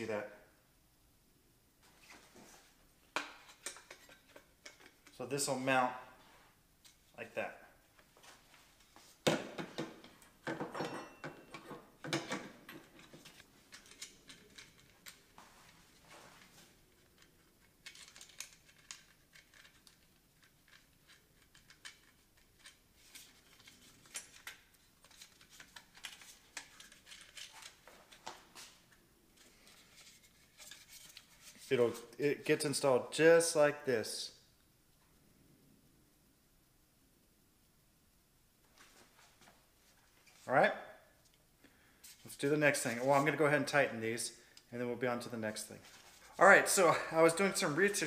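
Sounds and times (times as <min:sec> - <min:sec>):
plastic and metal parts clicking: 0:17.0 - 0:27.8.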